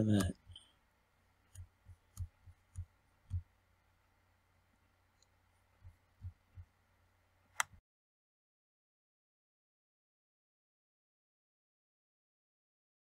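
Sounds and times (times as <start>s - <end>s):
computer mouse clicks and thumps: 1.5s - 3.5s, 5.2s - 6.7s, 7.5s - 7.8s.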